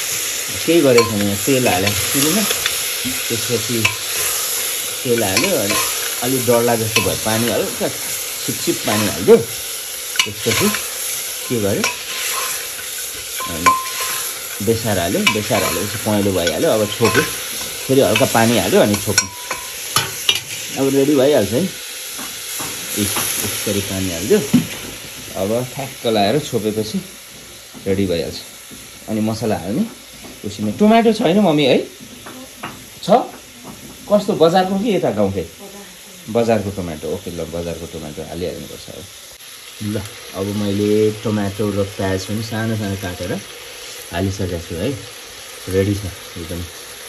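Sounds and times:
frying sizzle: 0.0 - 47.0
metal ladle scraping a pot: 0.8 - 9.4, 10.1 - 20.9.

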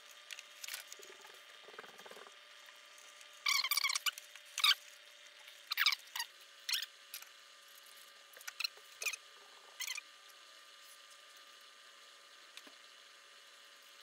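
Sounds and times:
faint steady hum: 0.0 - 14.0
high-pitched wood squeaks: 3.4 - 4.8.

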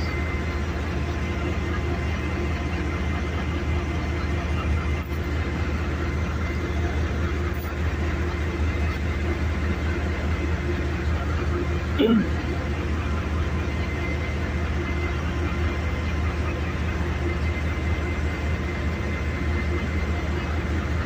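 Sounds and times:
distant diesel locomotive idling: 0.0 - 21.0.

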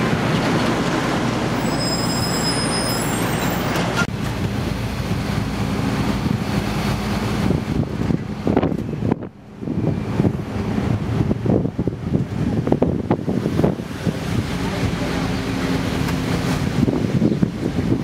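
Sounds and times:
bus engine and road noise: 0.0 - 18.0
wind buffeting microphone: 4.0 - 18.0.

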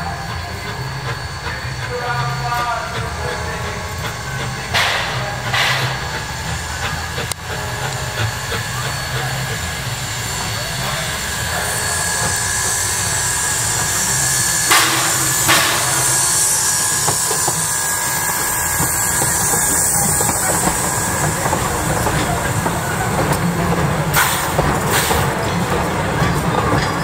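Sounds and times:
steam hissing: 0.0 - 27.0
train wheels clicking over rail joints: 0.0 - 27.0
sharp knocks: 4.8 - 6.0, 14.7 - 17.4.

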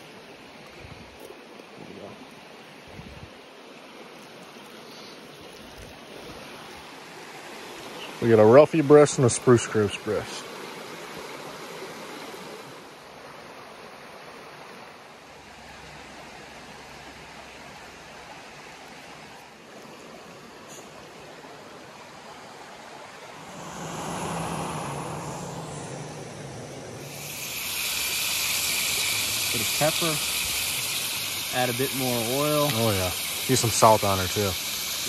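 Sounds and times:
brook water over rocks: 0.0 - 35.0
low steady hum: 23.2 - 29.7.

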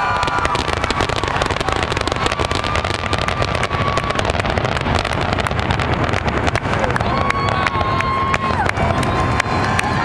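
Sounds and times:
fireworks bursting with bangs and crackles: 0.0 - 10.0.

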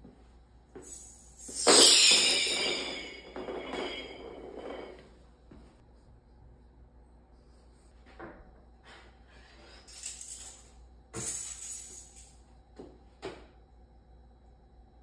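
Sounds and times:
sharp metallic clatters: 0.8 - 5.0
bandsaw blade rattling and jingling: 0.9 - 4.1.

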